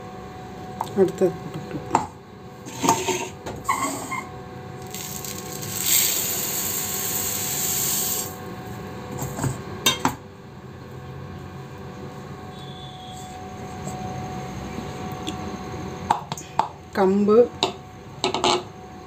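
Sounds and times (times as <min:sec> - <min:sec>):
grains pouring into metal jar: 0:04.8 - 0:08.4.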